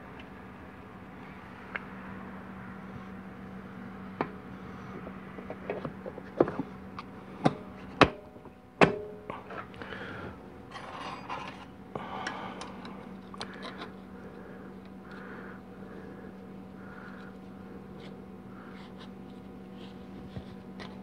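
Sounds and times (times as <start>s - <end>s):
metal rubbing and scraping: 10.7s - 11.7s.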